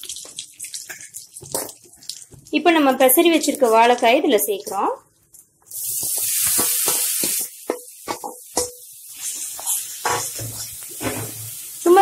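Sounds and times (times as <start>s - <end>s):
food sizzling in hot oil: 5.7s - 12.0s.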